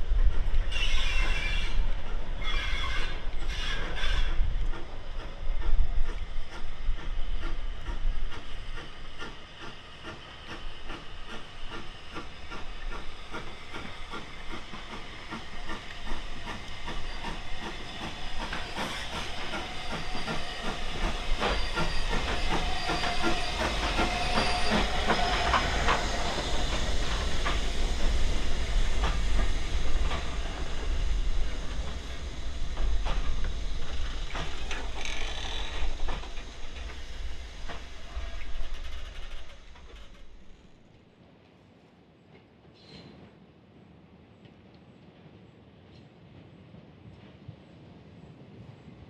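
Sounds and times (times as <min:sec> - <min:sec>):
steam hissing: 0:00.1 - 0:40.8
train wheels clicking: 0:02.8 - 0:40.9.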